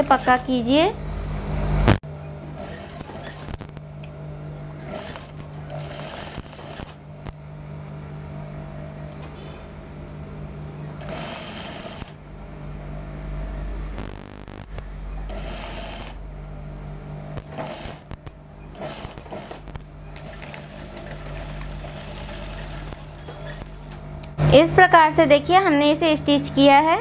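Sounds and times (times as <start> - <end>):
sewing machine running: 0.0 - 0.6, 2.4 - 3.7, 4.6 - 7.0, 10.9 - 12.2, 15.2 - 16.2, 17.4 - 24.0.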